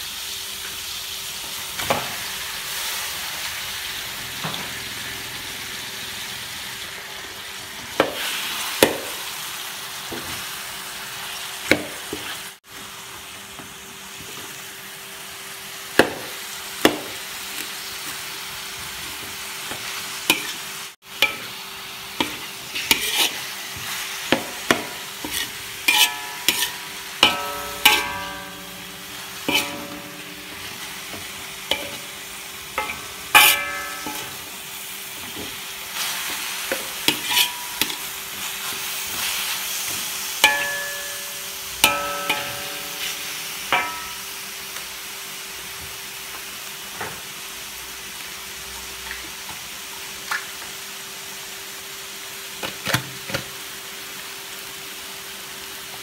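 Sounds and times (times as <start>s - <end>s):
light frying sizzle: 0.0s - 56.0s
metal spoon knocking on wok: 24.3s - 32.1s, 32.8s - 34.5s, 40.4s - 44.2s.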